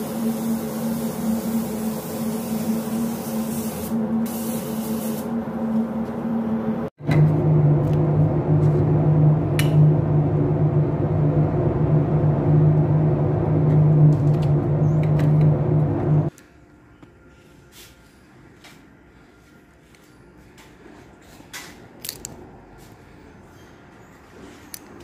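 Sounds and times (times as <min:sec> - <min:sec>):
machinery humming: 0:00.0 - 0:16.3
faint hum: 0:03.9 - 0:21.0.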